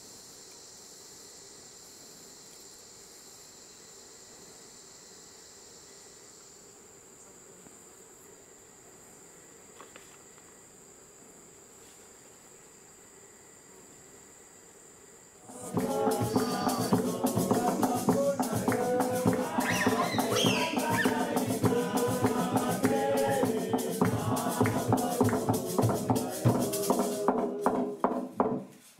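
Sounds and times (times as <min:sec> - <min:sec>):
high-pitched insect drone: 0:00.0 - 0:28.1
loud music with percussion: 0:15.5 - 0:28.2.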